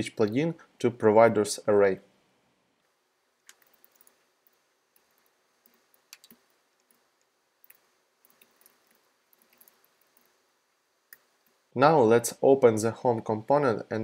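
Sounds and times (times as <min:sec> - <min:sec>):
computer keys clicking: 0:03.4 - 0:10.4.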